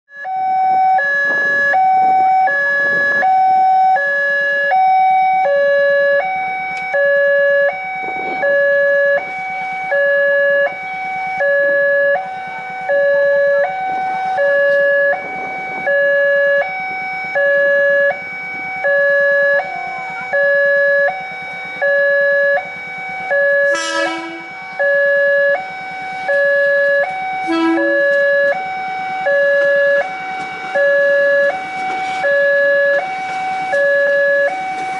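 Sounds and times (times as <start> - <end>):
level-crossing warning alarm: 0.1 - 34.9.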